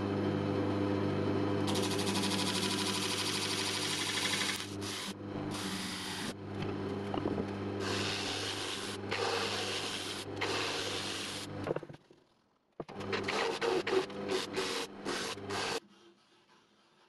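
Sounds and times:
wood lathe motor humming: 0:01.6 - 0:11.7, 0:12.9 - 0:15.9.

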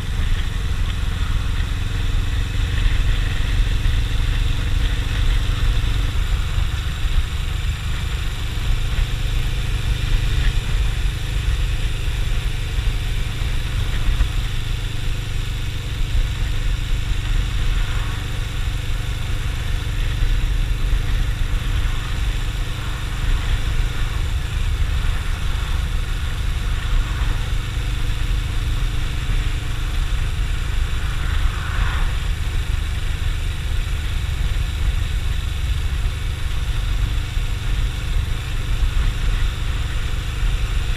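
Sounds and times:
motorcycle engine running: 0:00.0 - 0:40.9
wind and road noise: 0:00.0 - 0:40.9.

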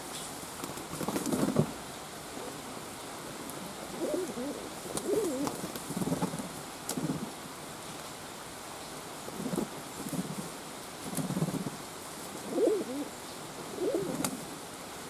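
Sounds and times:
pigeon cooing: 0:03.9 - 0:05.6, 0:12.4 - 0:14.4.

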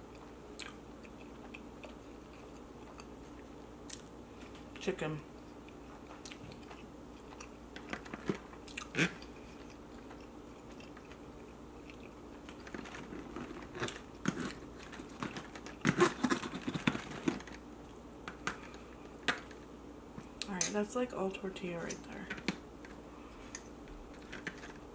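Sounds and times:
chewing: 0:00.1 - 0:04.1, 0:05.4 - 0:08.0, 0:08.6 - 0:17.2.

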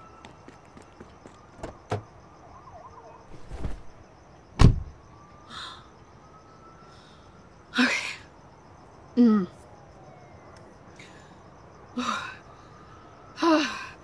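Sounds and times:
rustle: 0:03.3 - 0:04.1
heavy thump: 0:04.6 - 0:04.9.

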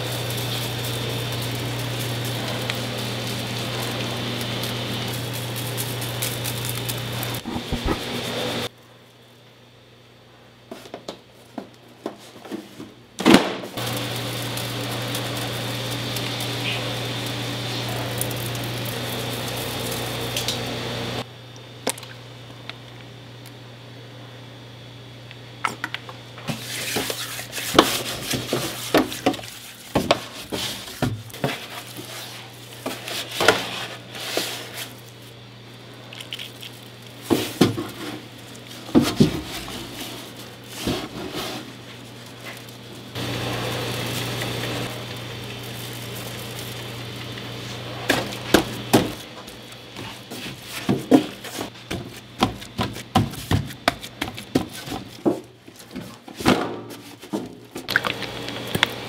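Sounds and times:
steady low hum: 0:00.0 - 0:10.7
tools and meat knocking: 0:50.8 - 0:55.5.

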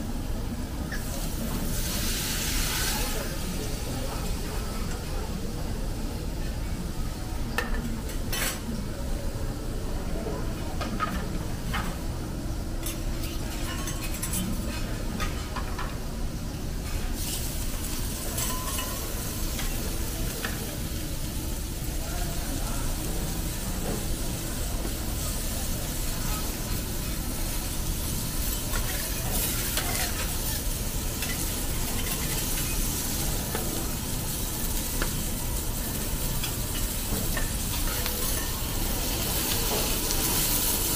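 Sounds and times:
meat sizzling on a griddle: 0:00.9 - 0:05.5, 0:16.8 - 0:40.9.

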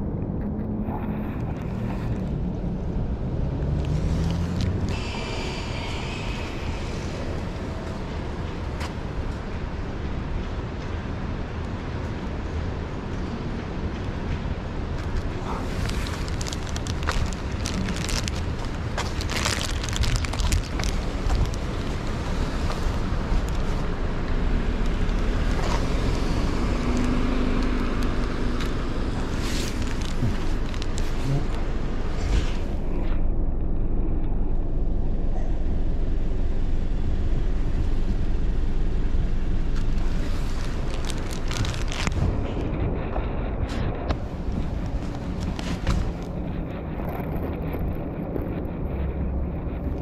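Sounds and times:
car engines: 0:00.0 - 0:50.0
distant traffic rumble: 0:00.0 - 0:50.0
wind on microphone: 0:00.0 - 0:50.0
tyre noise on wet road: 0:00.1 - 0:33.4, 0:35.6 - 0:50.0
steady low hum: 0:04.6 - 0:50.0.

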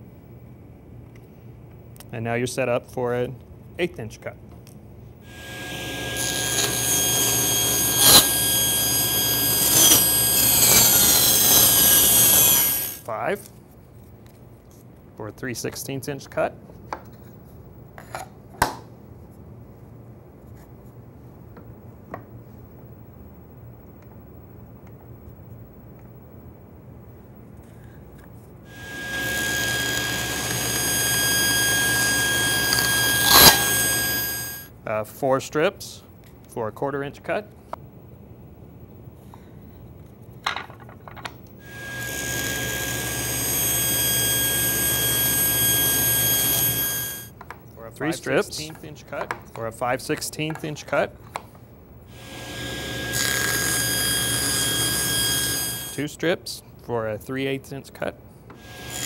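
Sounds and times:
table saw motor whining: 0:05.3 - 0:13.1, 0:28.7 - 0:34.7, 0:41.6 - 0:47.3, 0:52.1 - 0:56.0, 0:58.6 - 0:59.0
steady low hum: 0:19.0 - 0:40.4.

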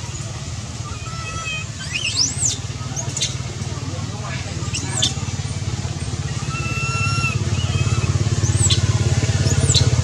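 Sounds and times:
pulsing engine hum: 0:00.0 - 0:10.0.

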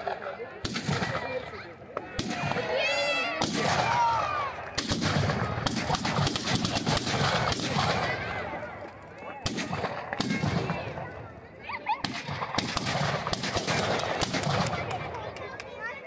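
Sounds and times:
people calling out: 0:00.0 - 0:12.4
firecrackers banging: 0:00.0 - 0:15.8.

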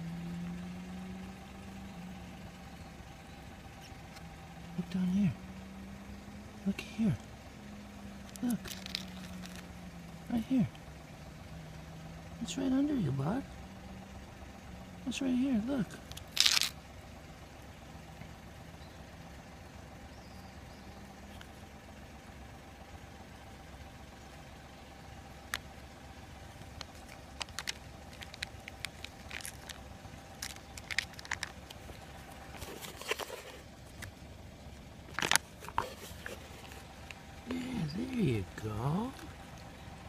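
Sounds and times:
steady low hum: 0:00.0 - 0:40.0
animal chewing and licking: 0:26.6 - 0:29.8
phone rustling against clothing: 0:26.6 - 0:34.2, 0:35.1 - 0:37.7.

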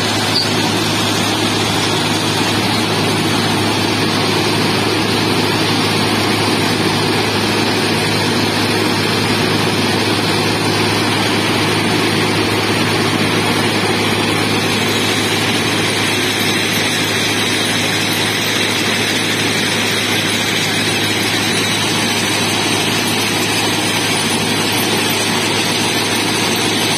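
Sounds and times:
diesel engines running: 0:00.0 - 0:26.9.

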